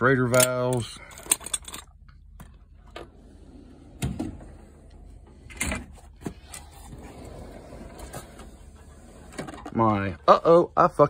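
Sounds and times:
drawers sliding on runners: 0:06.4 - 0:09.7.

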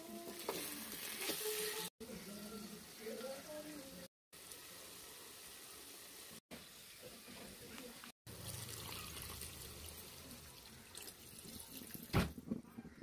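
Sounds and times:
liquid pouring into a pan: 0:08.3 - 0:12.1.

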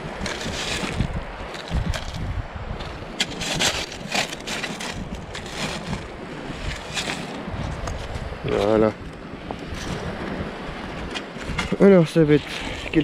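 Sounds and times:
metal scoop scraping sand and pebbles: 0:00.0 - 0:07.8, 0:11.0 - 0:13.0
wind buffeting microphone: 0:00.0 - 0:13.0.

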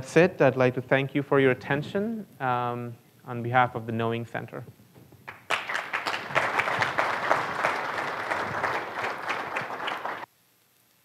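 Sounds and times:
audience applauding: 0:05.2 - 0:10.3.

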